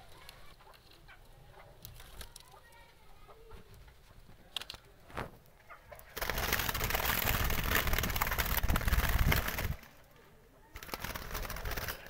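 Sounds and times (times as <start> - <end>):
loud close rustling and crackling: 1.8 - 3.0, 3.7 - 10.1, 10.7 - 12.0.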